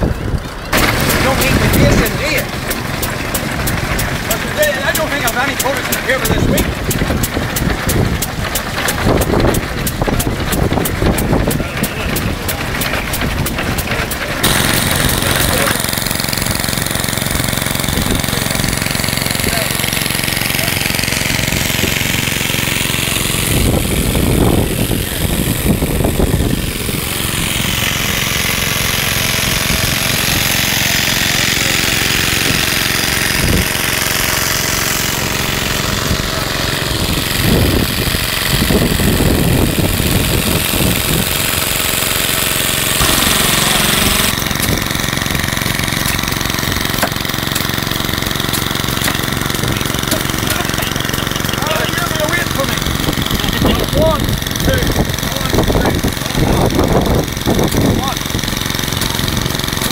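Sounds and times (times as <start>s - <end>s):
engines running: 0.0s - 59.9s
people talking: 0.8s - 2.6s, 3.6s - 15.9s, 17.8s - 21.0s, 29.8s - 32.8s, 43.0s - 44.4s, 49.8s - 57.1s, 57.7s - 58.2s.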